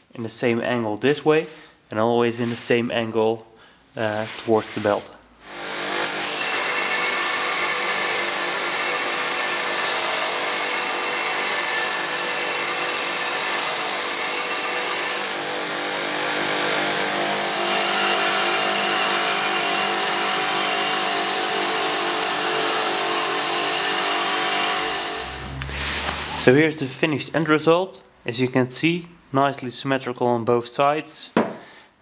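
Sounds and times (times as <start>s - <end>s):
motor hum: 24.6s - 26.4s.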